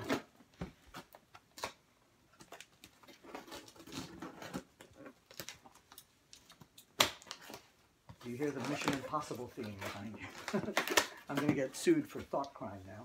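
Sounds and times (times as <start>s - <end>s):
cardboard and tape rustling: 0.0s - 13.0s.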